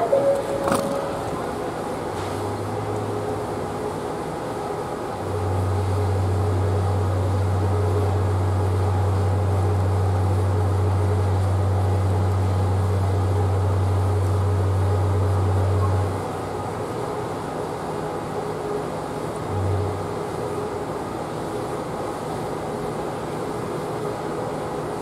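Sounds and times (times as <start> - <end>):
ship horn long deep blast: 0.0 - 1.9.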